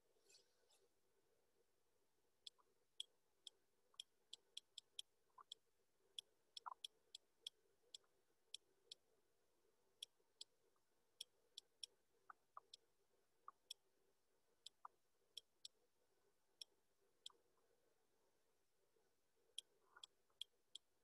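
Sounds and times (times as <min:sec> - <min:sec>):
faint sharp clicks: 0:06.2 - 0:09.1, 0:14.6 - 0:15.8.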